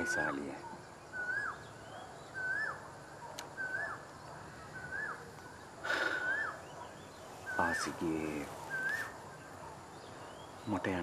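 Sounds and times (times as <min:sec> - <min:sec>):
bird whistling call: 0:00.0 - 0:02.8, 0:03.5 - 0:04.1, 0:04.7 - 0:08.0, 0:08.6 - 0:09.4.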